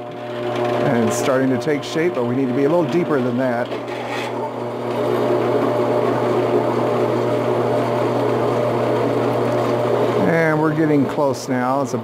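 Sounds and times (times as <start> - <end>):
drill bit cutting steel: 0.0 - 9.3
drill press motor hum: 0.0 - 11.2.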